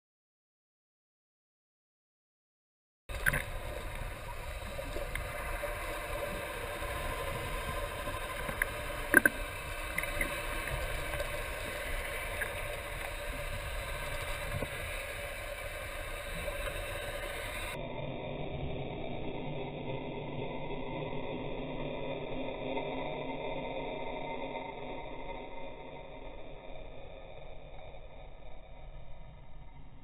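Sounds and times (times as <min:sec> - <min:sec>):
faint clicks: 0:03.1 - 0:17.8
underwater rushing noise: 0:03.1 - 0:25.3.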